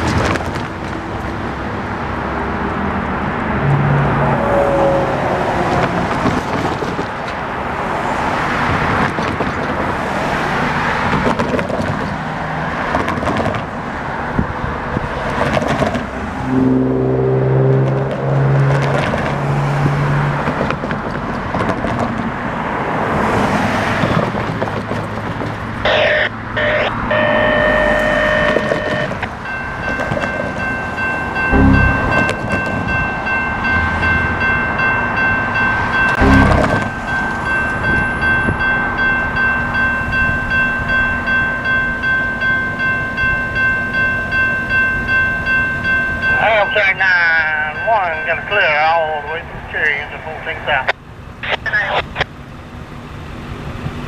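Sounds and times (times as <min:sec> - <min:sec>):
cars driving past: 0:00.0 - 0:42.4
crossing warning bells ringing: 0:16.0 - 0:18.7, 0:25.7 - 0:50.9.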